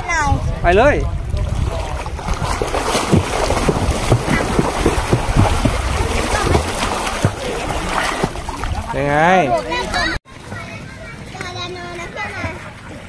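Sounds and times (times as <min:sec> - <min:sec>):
wind rumbling on microphone: 0:00.0 - 0:10.2
water splashing and sloshing: 0:01.1 - 0:13.0.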